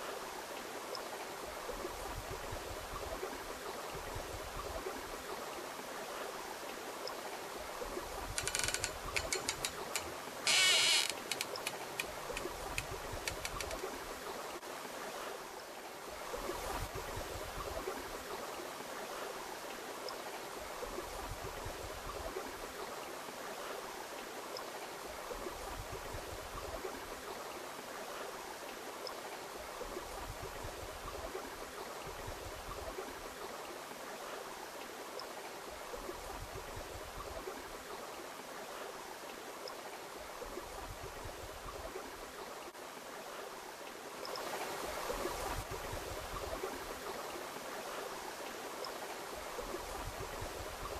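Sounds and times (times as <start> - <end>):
sharp clicks and rattles: 8.4 - 13.8.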